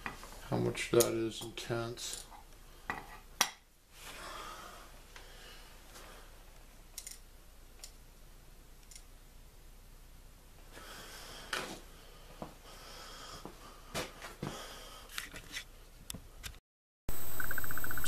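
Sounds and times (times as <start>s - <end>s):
faint breathing close to microphone: 10.7s - 15.3s.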